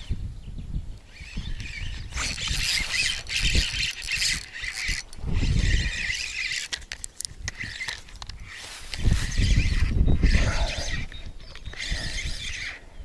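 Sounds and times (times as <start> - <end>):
wind on microphone: 0.0 - 6.7, 7.3 - 13.0
sharp reel clicks: 1.0 - 12.8
fishing reel whirring: 1.1 - 12.9.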